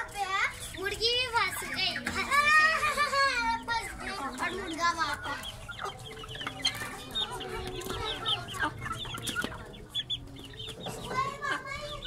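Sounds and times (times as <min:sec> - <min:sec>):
chickens clucking: 0:00.0 - 0:12.0
high-pitched peeping calls: 0:03.8 - 0:12.0.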